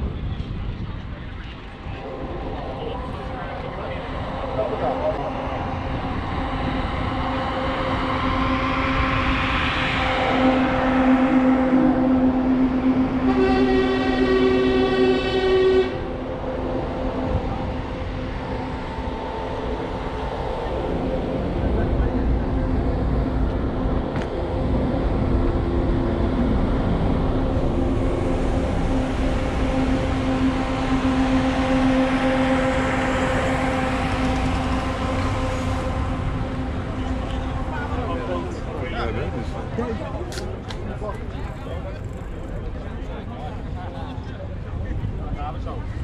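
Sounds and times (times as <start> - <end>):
low rumble: 0.0 - 46.0
faint steady horn tones: 1.8 - 40.7
loud multi-tone horn blast: 2.0 - 39.9.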